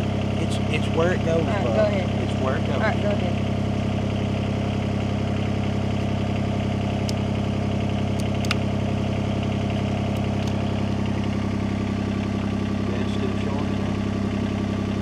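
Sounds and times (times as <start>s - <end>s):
diesel engine idling: 0.0s - 15.0s
crimping tool clicks: 8.2s - 8.6s.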